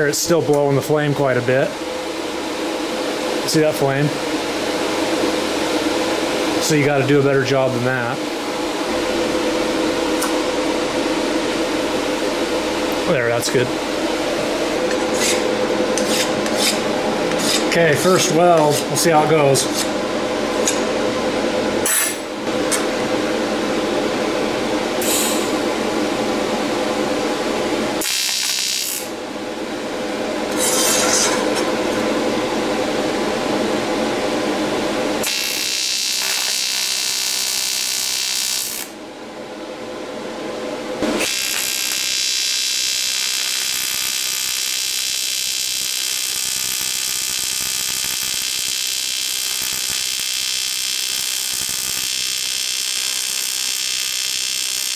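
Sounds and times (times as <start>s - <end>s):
steady hum: 0.0s - 54.9s
welding arc buzzing: 7.8s - 22.9s, 25.0s - 25.7s, 27.9s - 29.2s, 30.4s - 32.0s, 35.1s - 39.0s, 41.0s - 54.9s.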